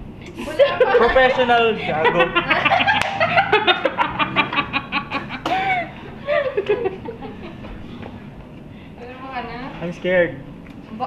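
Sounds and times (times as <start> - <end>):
people laughing: 0.3 - 7.7.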